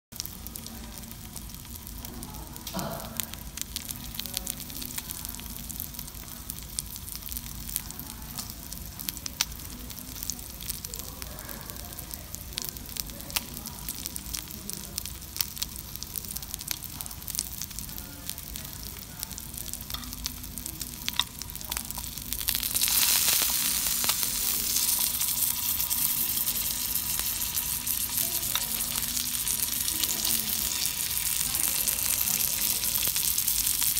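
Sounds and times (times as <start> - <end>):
beef sizzling on a griddle: 0.2 - 33.9
fat popping and crackling: 15.0 - 33.9.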